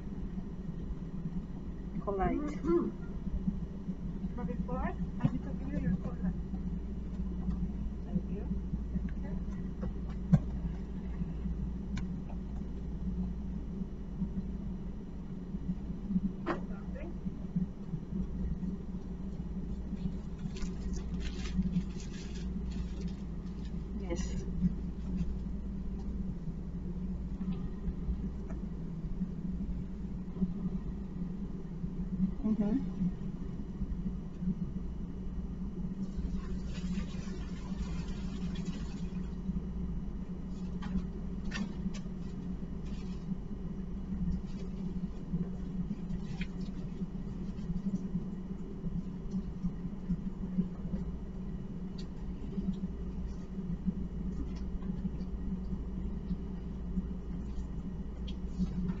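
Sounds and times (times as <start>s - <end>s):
low room hum: 0.0s - 59.0s
paper towels rustling: 19.9s - 25.5s, 36.2s - 39.4s, 40.5s - 43.5s
paper rustling: 20.1s - 24.4s.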